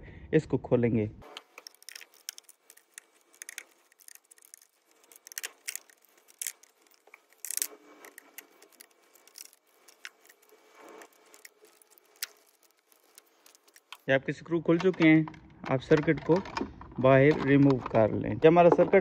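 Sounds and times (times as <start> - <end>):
screwdriver clicks and scrapes: 1.2 - 14.1.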